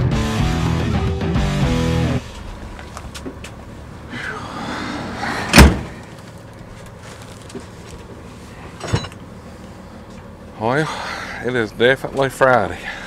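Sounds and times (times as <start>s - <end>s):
door slamming shut: 5.4s - 6.0s.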